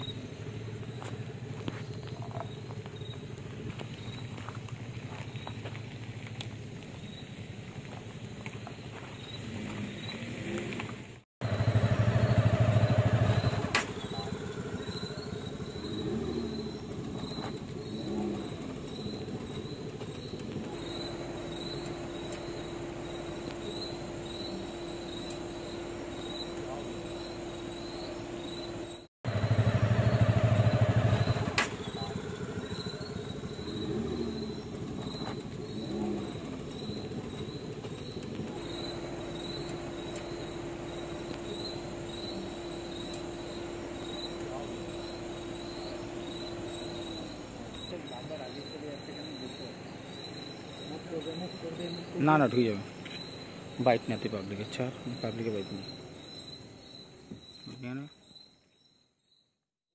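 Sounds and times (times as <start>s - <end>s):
motorcycle engines idling: 0.0s - 57.8s
insects chirping: 0.0s - 59.6s
low vehicle hum: 10.3s - 48.0s.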